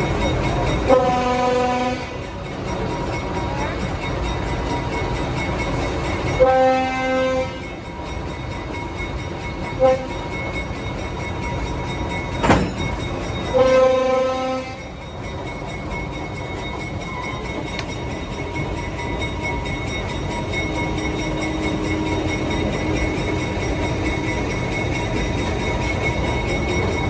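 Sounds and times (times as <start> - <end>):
train rumbling: 0.0 - 27.0
locomotive horn blasts: 0.9 - 2.2, 6.4 - 7.8, 9.8 - 10.2, 13.5 - 14.9.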